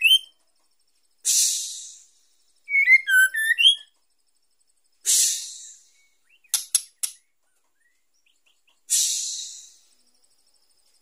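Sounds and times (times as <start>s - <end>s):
bird sharp ticks: 6.4s - 7.3s.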